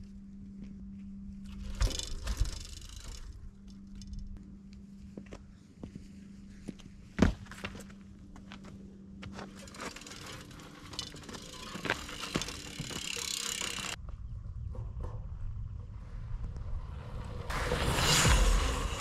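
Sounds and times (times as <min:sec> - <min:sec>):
bicycle freehub ticking: 0:01.5 - 0:04.4, 0:09.5 - 0:14.0
wind rumble on microphone: 0:14.0 - 0:19.0.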